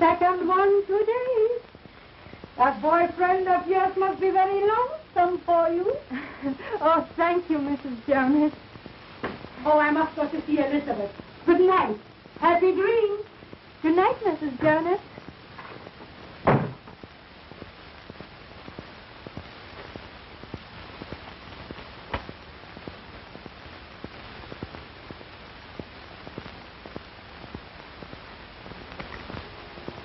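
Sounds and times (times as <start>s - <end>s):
film soundtrack hiss: 0.0s - 30.0s
faint clicks and pops: 1.6s - 2.6s, 7.7s - 30.0s
door shutting: 16.4s - 17.0s.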